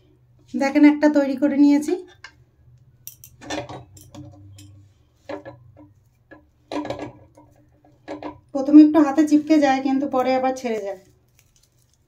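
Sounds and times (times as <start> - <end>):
light clicks and clinks: 3.0 - 4.8
puffed rice crackling and rustling: 9.3 - 12.0.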